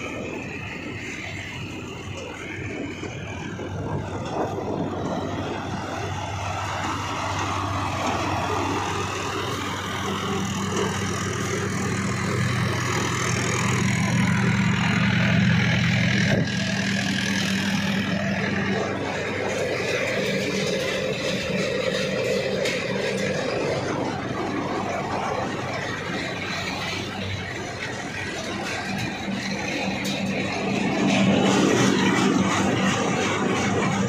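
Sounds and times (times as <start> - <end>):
thresher engine humming: 0.0 - 34.0.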